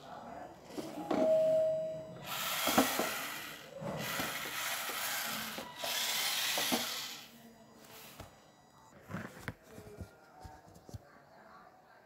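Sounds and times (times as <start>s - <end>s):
wheels grinding on tiled floor: 2.2s - 7.3s
small electric motors whirring: 2.2s - 7.4s.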